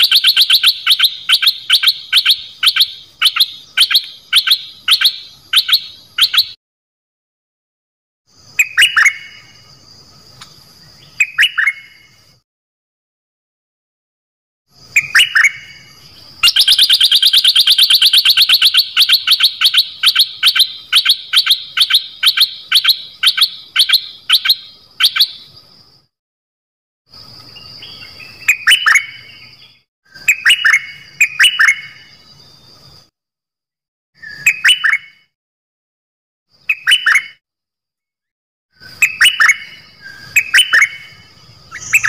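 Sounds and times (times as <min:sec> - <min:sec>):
bird calling sharp repeated notes: 0:00.0 - 0:06.6, 0:11.1 - 0:12.2, 0:14.8 - 0:25.6, 0:34.2 - 0:35.3, 0:36.6 - 0:37.4, 0:38.8 - 0:42.0
bird down-slurred chirps: 0:00.0 - 0:06.6, 0:14.8 - 0:25.6, 0:38.8 - 0:42.0.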